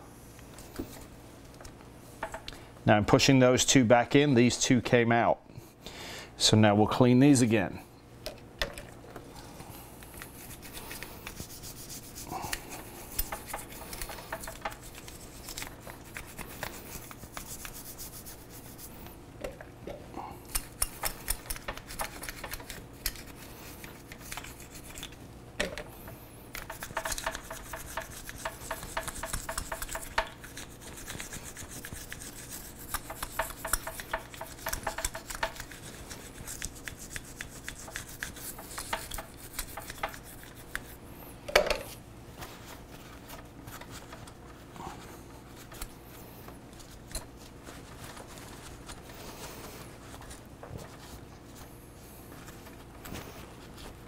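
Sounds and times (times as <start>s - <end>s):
small brush scrubbing metal: 10.0s - 19.2s, 20.5s - 25.2s, 26.0s - 41.0s.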